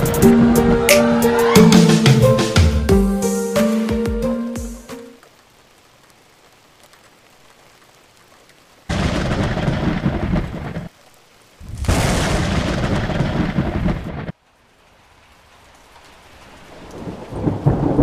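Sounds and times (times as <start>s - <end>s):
rain hiss: 0.0s - 2.4s, 3.1s - 18.0s
thunder rumbling: 8.9s - 10.9s, 11.6s - 14.3s, 16.6s - 18.0s.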